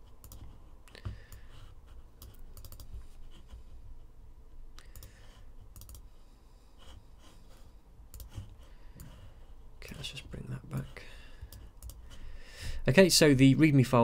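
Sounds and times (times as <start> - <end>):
low steady hum: 0.0 - 14.0
computer mouse clicking: 0.2 - 1.5, 2.2 - 3.0, 4.7 - 6.1, 8.1 - 9.2, 11.4 - 12.1.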